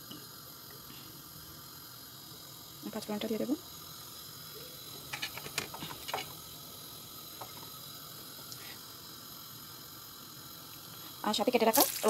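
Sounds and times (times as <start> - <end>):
seeds sizzling in hot oil: 0.0 - 12.0
sharp crackles: 11.7 - 12.0.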